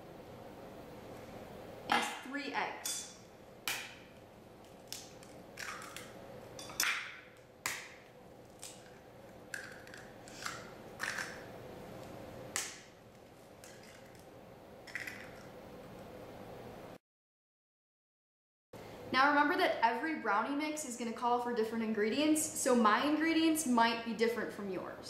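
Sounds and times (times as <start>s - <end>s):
eggs cracking on bowl rim: 3.7s - 11.5s, 13.6s - 14.3s, 14.9s - 15.5s.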